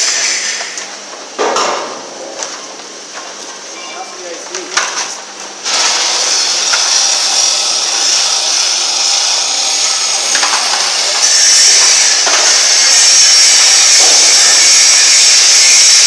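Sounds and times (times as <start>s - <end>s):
hydraulic pump motor hissing: 5.6s - 16.0s.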